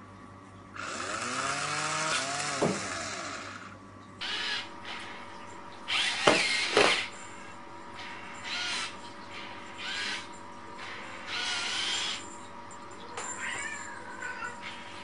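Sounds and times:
small electric motor whirring: 0.8s - 5.0s, 5.9s - 7.1s, 9.8s - 10.3s, 11.3s - 12.3s.

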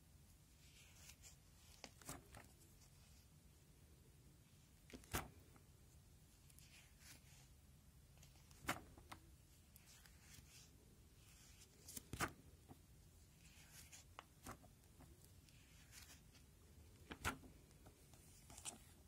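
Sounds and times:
plastic sleeve pages rustling: 0.6s - 3.2s, 4.8s - 5.6s, 8.2s - 19.0s
page snapping over: 4.9s - 5.4s, 8.5s - 9.2s, 17.0s - 17.5s.

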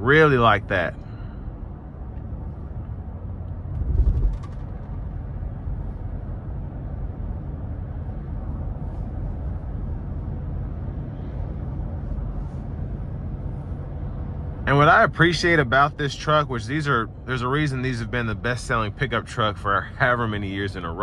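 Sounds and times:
road and engine rumble: 0.0s - 21.0s
low thump: 3.7s - 4.9s.

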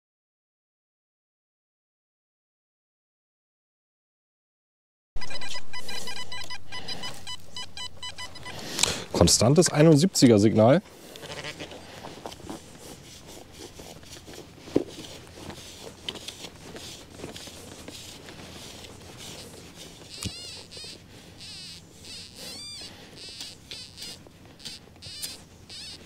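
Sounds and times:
hand tool scraping dry soil: 8.2s - 26.0s.

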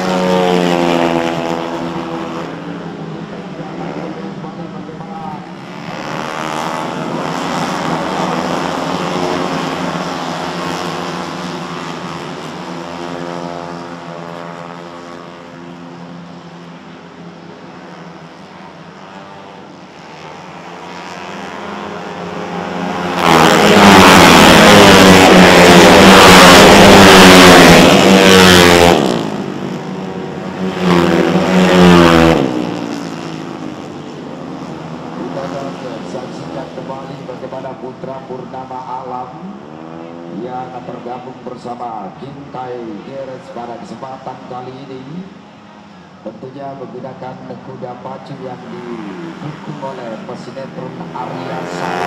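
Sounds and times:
scooter passing close: 0.0s - 4.3s, 17.9s - 37.3s, 48.6s - 52.0s
racing scooter engines: 0.0s - 52.0s.

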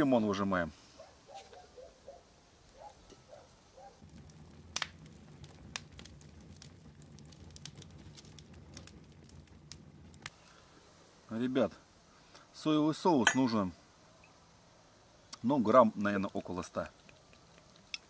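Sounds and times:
lemon squishing and juice pattering: 16.1s - 18.0s.

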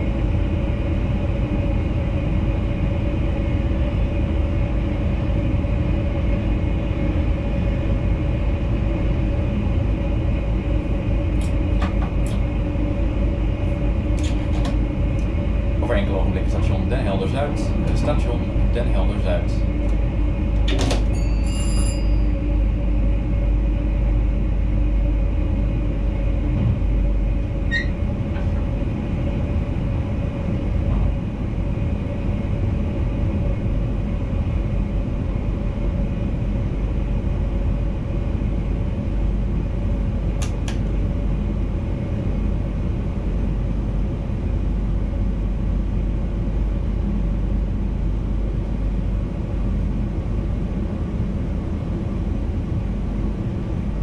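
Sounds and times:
electric train rumble and hum: 0.0s - 54.0s
short high beep: 21.2s - 22.2s.

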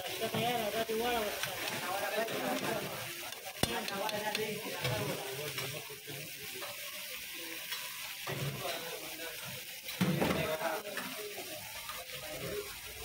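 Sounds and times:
fish sizzling in hot oil: 0.0s - 13.0s
metal clack on pan: 3.3s - 5.7s.

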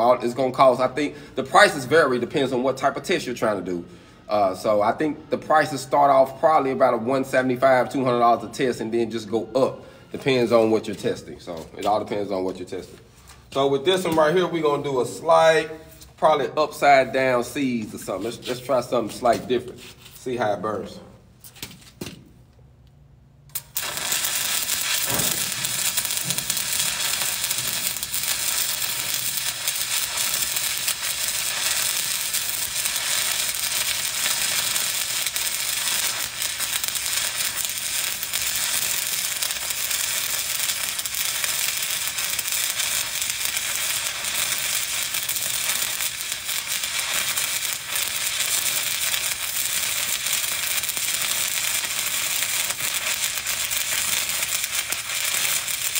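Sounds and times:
welding arc crackling and sizzling: 0.0s - 3.4s, 23.5s - 55.9s.

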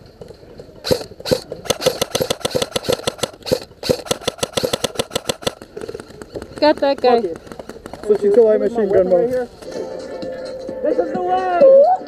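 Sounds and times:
airsoft rifle firing: 0.8s - 6.1s.

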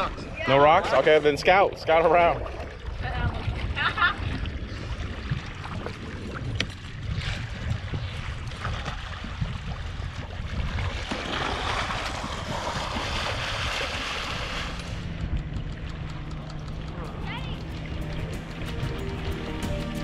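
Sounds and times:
water lapping: 0.0s - 20.0s
wind noise on microphone: 2.2s - 20.0s
splashing from fin kicks: 8.5s - 15.8s.

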